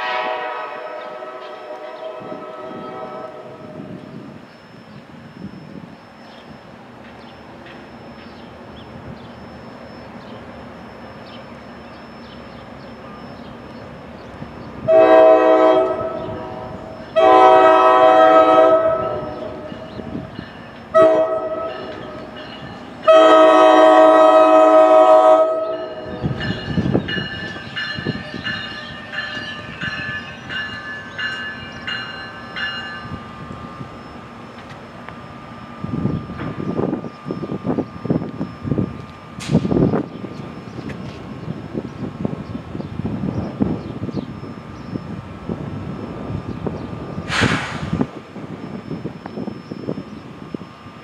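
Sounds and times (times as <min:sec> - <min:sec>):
train air horn: 0:00.0 - 0:03.9, 0:14.8 - 0:19.8, 0:20.9 - 0:22.1, 0:23.0 - 0:26.4
rail clicks: 0:00.0 - 0:15.0, 0:15.7 - 0:51.0
train rumble: 0:00.0 - 0:51.0.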